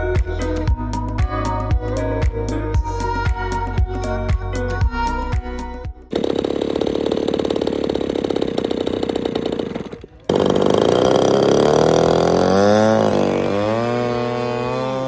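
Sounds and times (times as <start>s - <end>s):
model plane gasoline engine running: 6.1s - 15.0s.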